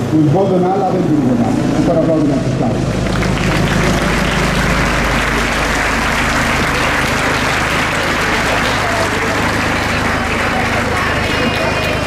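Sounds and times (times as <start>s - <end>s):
audience applauding: 2.9s - 12.0s.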